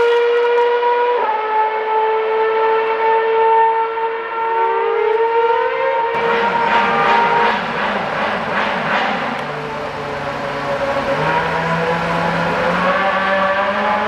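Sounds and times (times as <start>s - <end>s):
race car engine whining: 0.0s - 14.0s
rough pulsing engine note: 6.1s - 14.0s.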